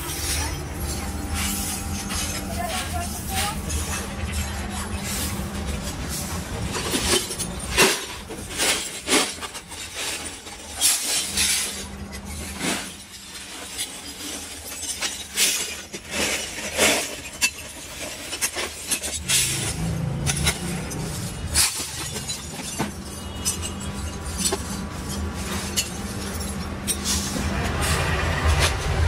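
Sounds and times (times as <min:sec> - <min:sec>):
broken glass crashing into wheelbarrow: 0:06.6 - 0:29.0.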